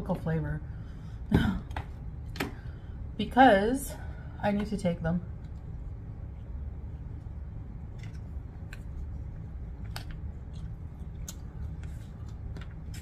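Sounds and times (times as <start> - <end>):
steady low hum: 0.0 - 13.0
person chewing: 6.2 - 13.0.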